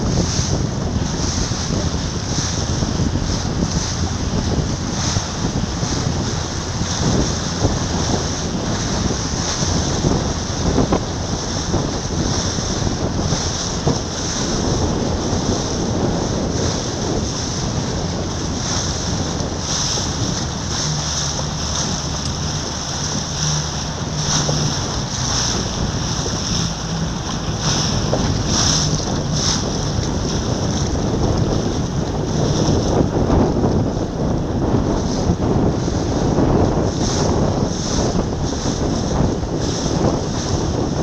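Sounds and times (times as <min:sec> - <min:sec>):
water rushing: 0:00.0 - 0:41.0
wind buffeting microphone: 0:00.0 - 0:41.0.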